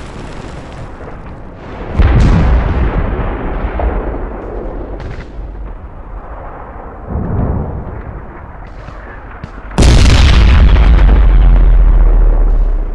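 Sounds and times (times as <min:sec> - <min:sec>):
artillery explosions: 0:00.0 - 0:12.9.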